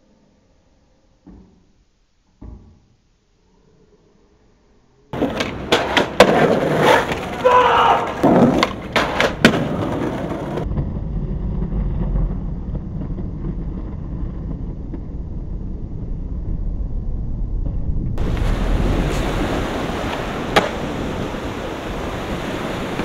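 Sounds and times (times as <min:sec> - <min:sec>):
skateboard clattering on stone: 0:05.2 - 0:10.7
wind on microphone: 0:10.6 - 0:23.0.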